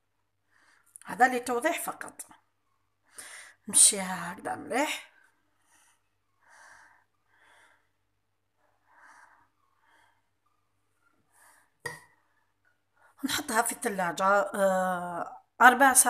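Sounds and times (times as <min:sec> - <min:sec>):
soft breaths: 0:00.1 - 0:01.0, 0:02.3 - 0:03.7, 0:05.0 - 0:13.2.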